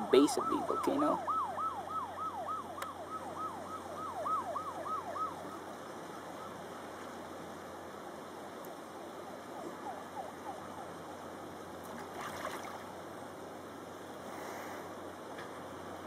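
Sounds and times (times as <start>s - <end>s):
distant siren wail: 0.0s - 7.6s, 8.8s - 13.1s
outdoor background hiss: 0.0s - 16.0s.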